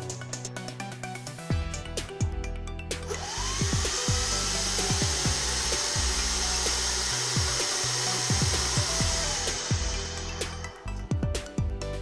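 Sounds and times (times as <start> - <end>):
electric motor whine: 3.0 - 11.1.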